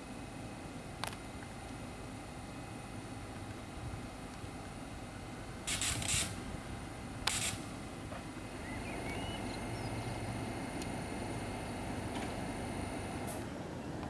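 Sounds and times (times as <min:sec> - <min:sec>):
steady background hum: 0:00.0 - 0:14.0
short sharp hisses: 0:05.7 - 0:06.4, 0:07.3 - 0:07.6
faint bird chirps: 0:08.5 - 0:10.2.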